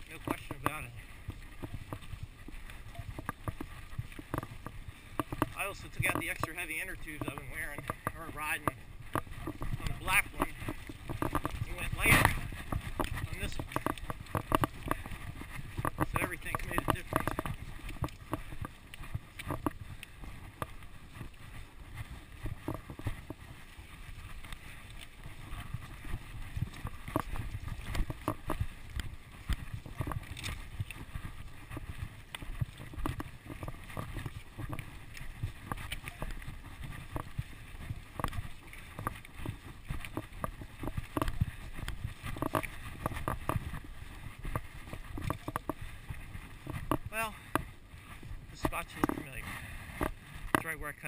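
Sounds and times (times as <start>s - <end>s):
bike tyres rumbling over stones: 0.0s - 51.0s
wheels knocking and rattling on rocks: 0.0s - 51.0s.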